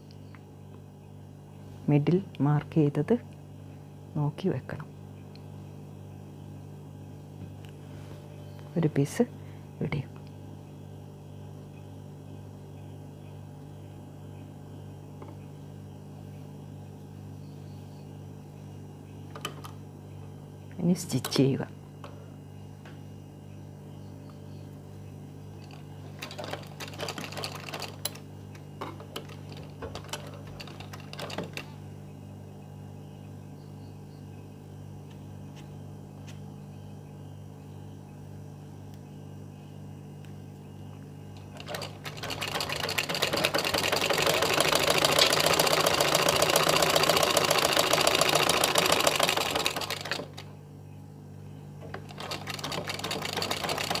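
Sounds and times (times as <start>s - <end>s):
steady low hum: 0.0s - 54.0s
sewing machine stitching: 26.2s - 28.1s, 41.5s - 50.5s, 51.9s - 54.0s.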